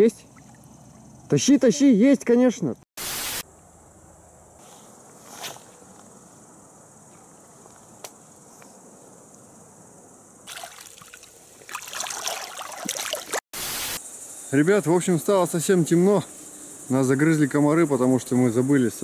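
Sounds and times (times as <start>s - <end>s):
insect chirring: 0.0s - 2.1s, 3.0s - 19.0s
water splashing and sloshing: 0.3s - 1.0s, 10.4s - 13.4s.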